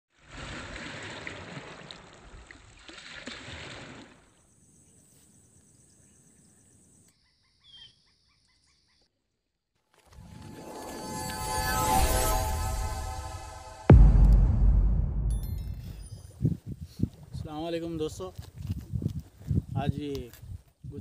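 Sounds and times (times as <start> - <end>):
bird chirp: 4.6 - 9.1
music: 10.2 - 15.4.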